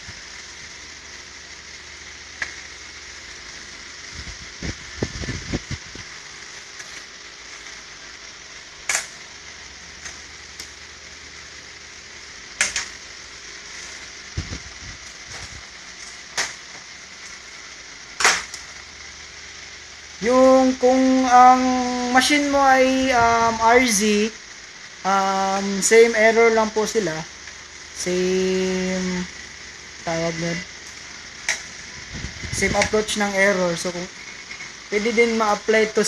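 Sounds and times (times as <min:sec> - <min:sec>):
steady hiss: 0:00.0 - 0:36.0.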